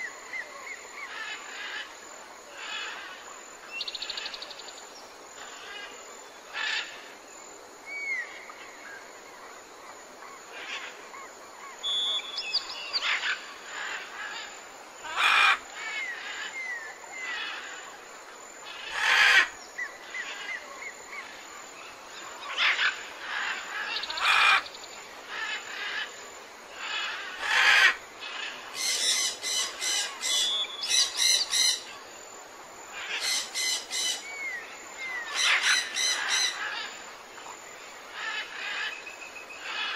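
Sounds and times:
faint steady hiss: 0:00.0 - 0:39.9
birds chirping and whistling: 0:11.8 - 0:13.1.

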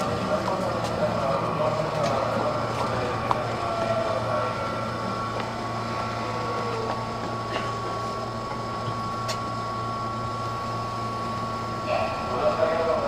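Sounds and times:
air conditioning hum: 0:00.0 - 0:13.0
high whine: 0:00.0 - 0:13.0.

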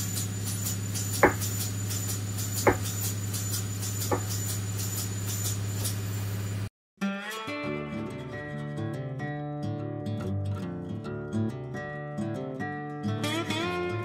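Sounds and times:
power hammer humming: 0:00.0 - 0:06.0
power hammer strikes: 0:00.0 - 0:06.0
acoustic guitar music: 0:07.0 - 0:14.0.

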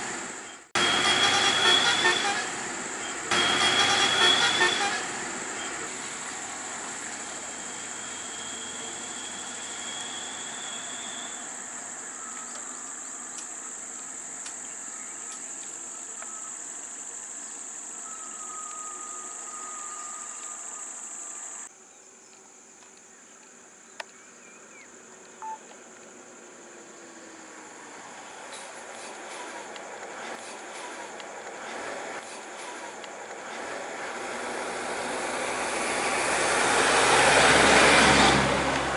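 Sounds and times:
high-pitched insect drone: 0:07.2 - 0:21.7.

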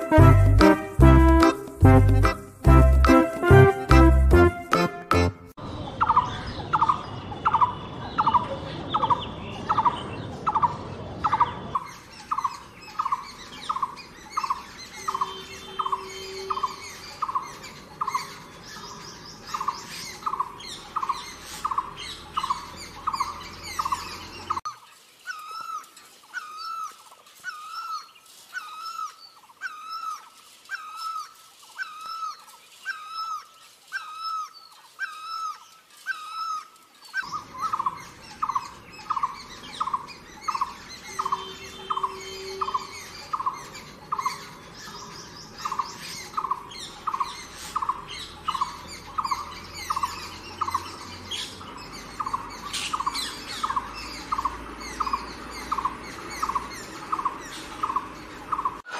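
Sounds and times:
bird calling repeated note: 0:14.4 - 0:17.4, 0:35.0 - 0:43.6.

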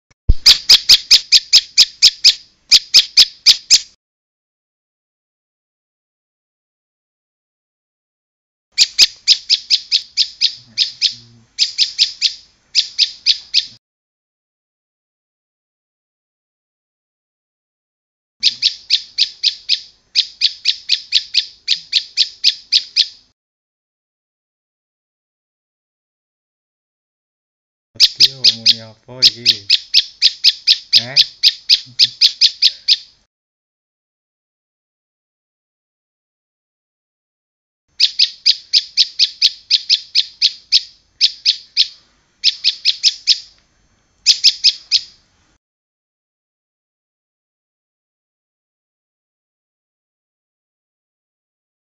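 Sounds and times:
bird chirping rapidly: 0:00.3 - 0:04.0, 0:08.8 - 0:13.8, 0:18.4 - 0:23.3, 0:28.0 - 0:33.2, 0:37.9 - 0:43.6, 0:44.2 - 0:45.2.

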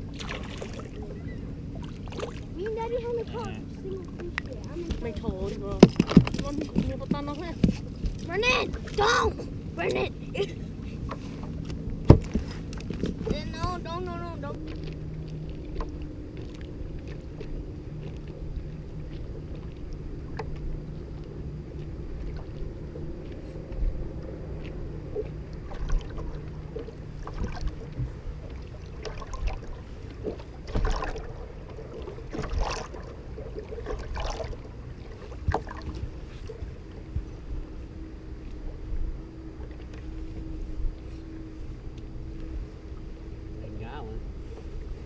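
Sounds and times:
low hum: 0:00.0 - 0:45.0
water slapping boat hull: 0:00.0 - 0:45.0
sharp splashes: 0:00.1 - 0:01.2, 0:01.8 - 0:02.9, 0:25.6 - 0:36.0.

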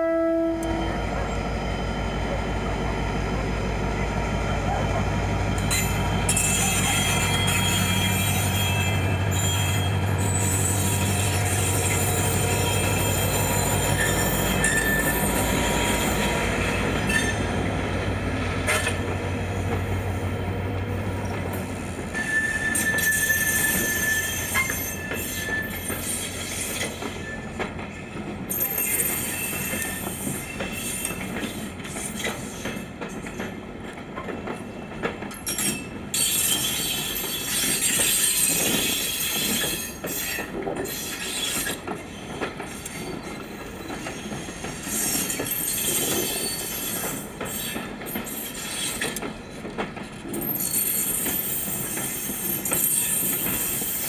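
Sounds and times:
diesel locomotive engine droning: 0:00.0 - 0:33.0
train wheels clicking: 0:04.7 - 0:54.0
wheel squeals: 0:05.7 - 0:17.6, 0:22.1 - 0:27.6, 0:28.5 - 0:32.8, 0:35.4 - 0:49.6, 0:50.2 - 0:54.0.

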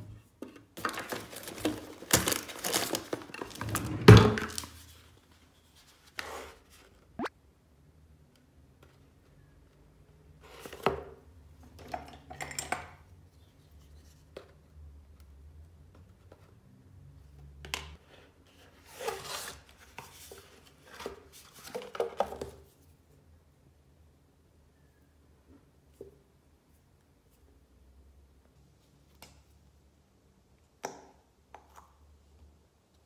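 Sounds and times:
boxes and tubes rustling: 0:00.0 - 0:07.0.

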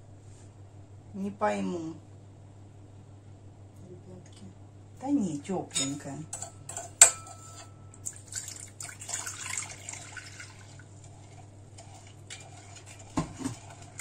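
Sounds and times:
water pouring into bowl: 0:08.0 - 0:11.0.

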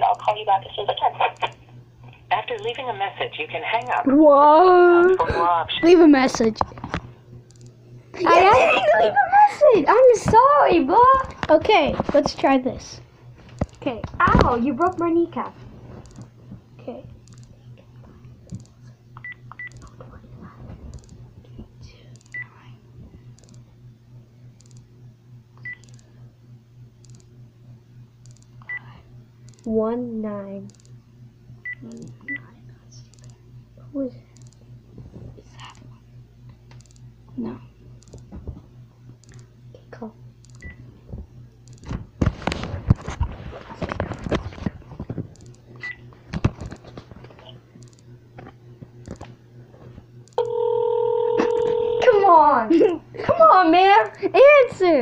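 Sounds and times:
faint low hum: 0:00.0 - 0:55.0
telephone beeps: 0:50.4 - 0:52.1
phone ringback tone: 0:50.4 - 0:52.2.

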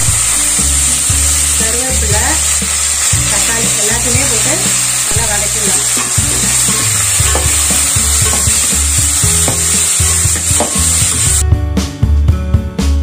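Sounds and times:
vegetables sizzling in hot oil: 0:00.0 - 0:11.4
drum-led music: 0:00.0 - 0:13.0
spatula scraping pot: 0:02.6 - 0:11.2.

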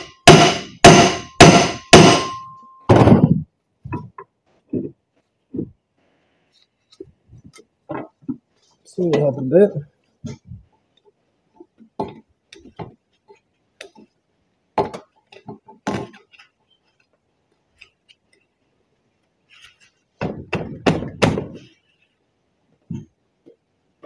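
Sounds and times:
heavy metal knocks: 0:00.0 - 0:03.4.

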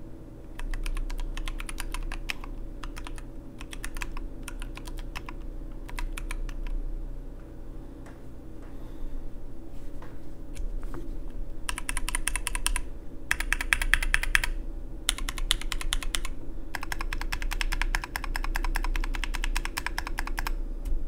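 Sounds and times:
fast mechanical keyboard typing: 0:00.5 - 0:06.8, 0:11.7 - 0:20.6.

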